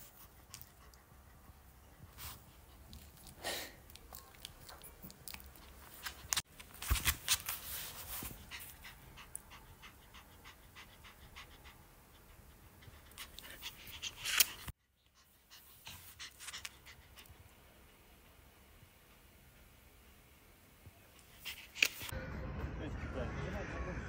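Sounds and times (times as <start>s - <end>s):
dog panting: 8.0s - 19.7s.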